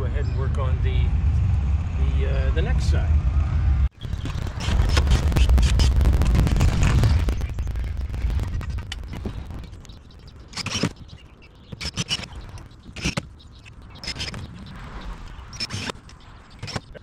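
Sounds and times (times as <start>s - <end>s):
low rumble: 0.0s - 11.5s.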